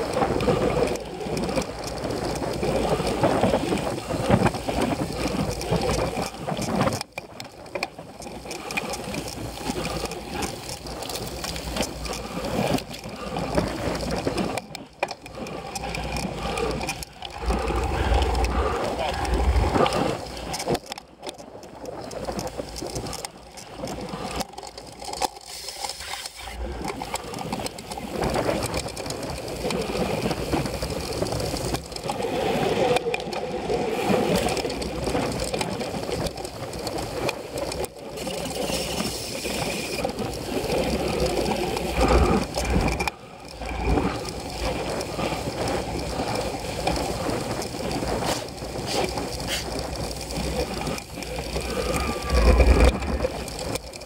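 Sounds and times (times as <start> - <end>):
bike rattling over rough ground: 0.0 - 54.0
clicks and knocks from bumps: 0.0 - 54.0.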